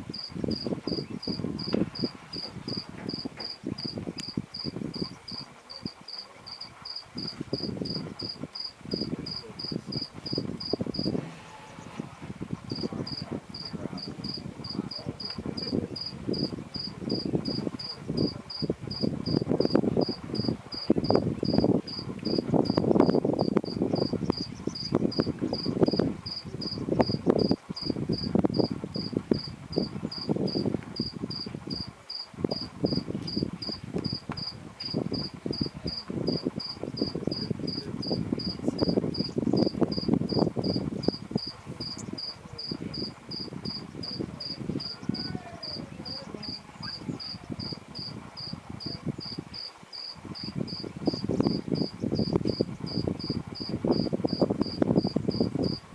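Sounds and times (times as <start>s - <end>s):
high insect chirp: 0.1s - 11.1s, 12.7s - 55.8s
low rushing noise: 7.1s - 24.3s.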